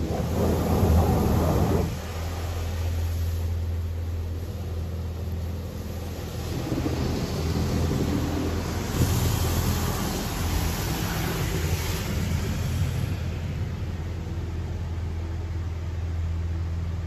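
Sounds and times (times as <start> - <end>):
high-pressure water spray on car: 0.0 - 15.1
steady low hum: 0.0 - 17.0.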